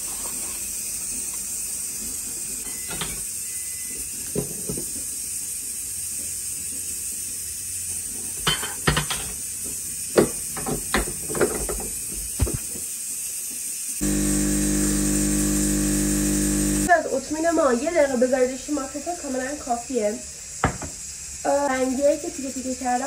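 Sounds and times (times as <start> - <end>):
espresso machine pump buzz: 0.0 - 17.0.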